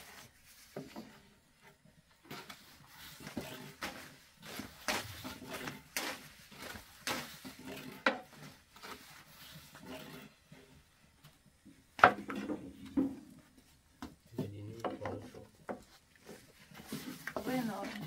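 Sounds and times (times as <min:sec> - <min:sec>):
rolling pins knocking on wooden boards: 0:12.0 - 0:13.4, 0:14.0 - 0:15.9.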